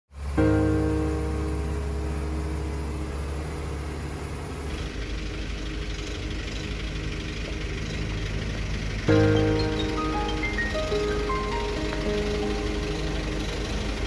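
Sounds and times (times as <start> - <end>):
truck rumbling past: 0.1 - 14.0
diesel engine drone inside cab: 0.2 - 14.0
held music chord: 0.2 - 14.0.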